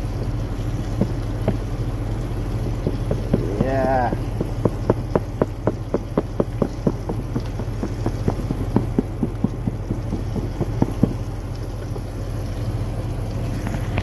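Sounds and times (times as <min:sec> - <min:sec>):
steady low hum: 0:00.0 - 0:14.0
food knocking in shaken plastic tub: 0:02.9 - 0:11.2.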